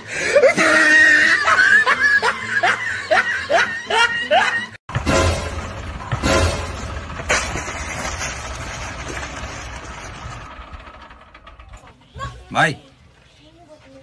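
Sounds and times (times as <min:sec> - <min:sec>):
comic snickering laughter: 0:00.3 - 0:04.8
motorcycle engine running: 0:04.9 - 0:12.6.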